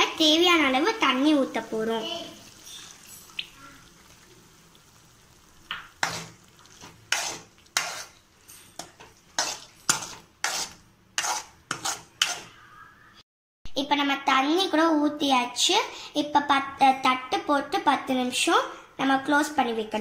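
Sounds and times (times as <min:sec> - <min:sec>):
metal spoon scraping a pan: 0:05.7 - 0:12.7.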